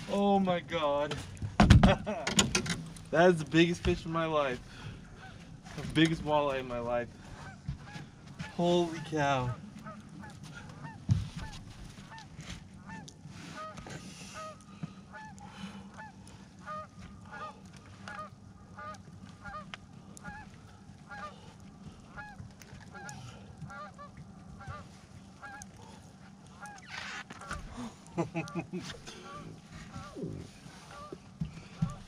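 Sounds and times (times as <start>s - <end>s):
low steady hum: 0.0s - 32.0s
geese honking: 7.3s - 32.0s.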